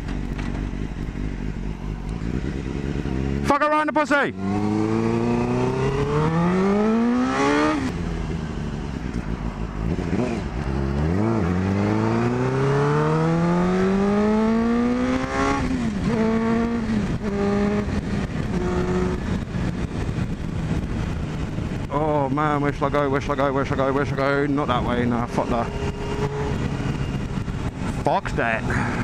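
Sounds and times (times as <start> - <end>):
motorcycle engine revving: 0.0 - 29.0
wind rushing: 24.6 - 28.1.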